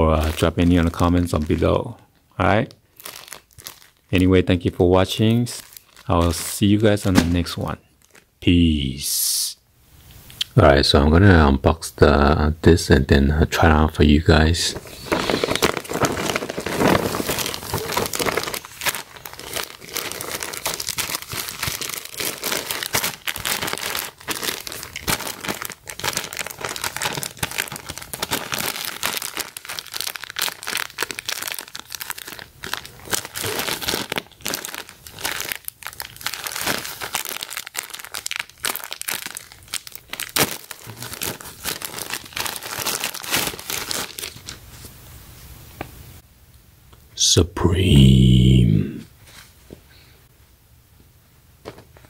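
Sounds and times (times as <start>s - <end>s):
plastic bag crinkling: 0.0s - 1.8s, 2.8s - 4.3s, 5.1s - 8.3s, 14.6s - 44.7s.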